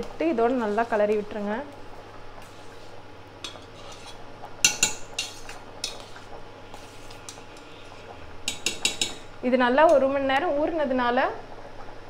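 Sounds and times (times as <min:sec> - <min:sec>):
water boiling: 0:00.0 - 0:12.0
metal spoon clinking in pot: 0:04.6 - 0:06.0, 0:08.5 - 0:09.3.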